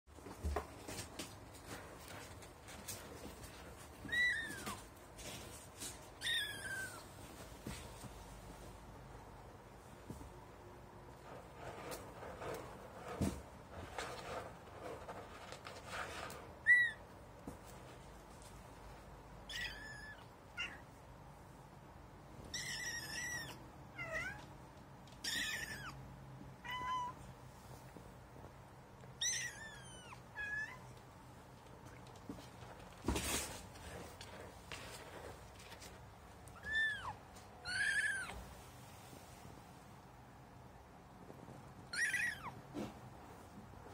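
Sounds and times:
scratchy rustle: 0:11.1 - 0:16.9.

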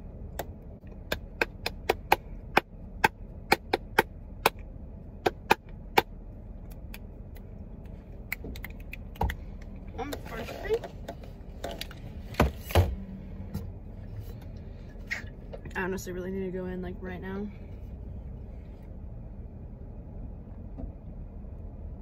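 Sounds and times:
hand claps: 0:01.1 - 0:04.6.

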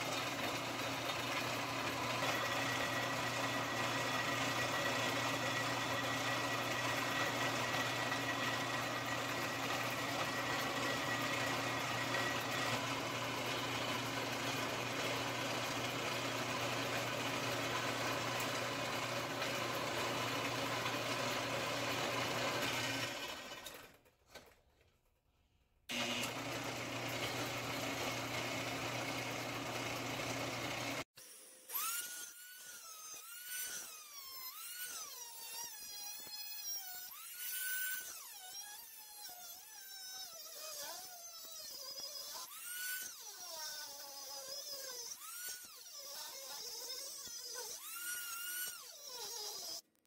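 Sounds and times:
band saw motor humming: 0:00.0 - 0:24.0, 0:25.9 - 0:39.2
die grinder cutting steel: 0:00.0 - 0:24.5, 0:25.9 - 0:50.0.

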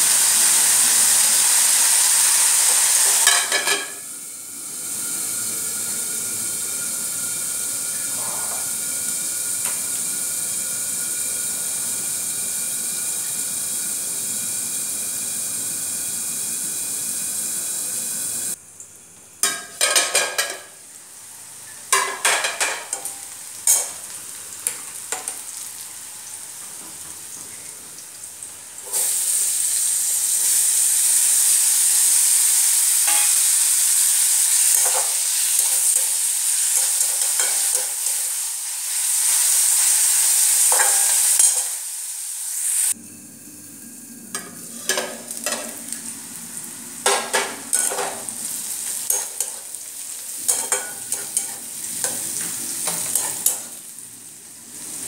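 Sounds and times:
vegetables sizzling in oil: 0:00.0 - 0:18.6, 0:19.4 - 0:55.0.

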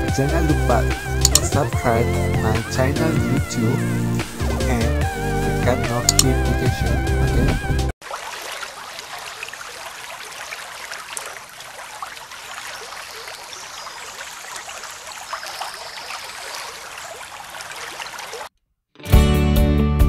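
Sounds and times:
stream water splashing over rocks: 0:08.0 - 0:18.5.

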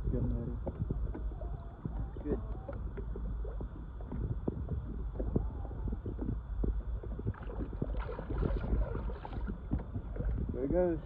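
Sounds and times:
water lapping against boat: 0:00.0 - 0:11.0
fish tail splash: 0:07.3 - 0:10.3.

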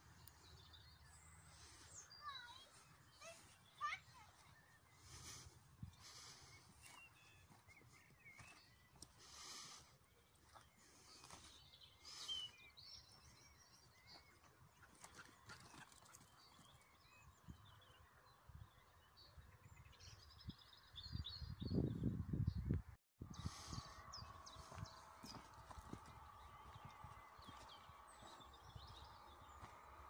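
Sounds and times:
faint birdsong chirping: 0:00.0 - 0:30.0
footsteps on rough soil: 0:03.8 - 0:13.4, 0:24.3 - 0:30.0.

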